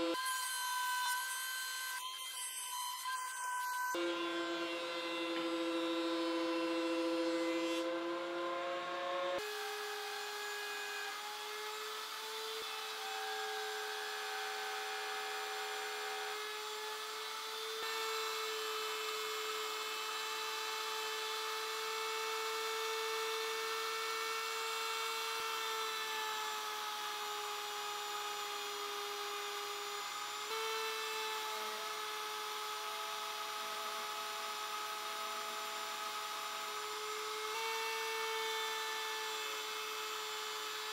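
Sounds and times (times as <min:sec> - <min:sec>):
router whining: 0:00.0 - 0:40.9.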